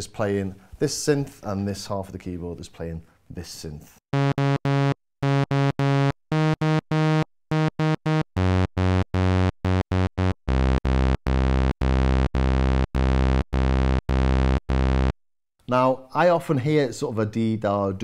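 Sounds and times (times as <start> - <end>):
synthesizer sawtooth notes: 4.1 - 15.2.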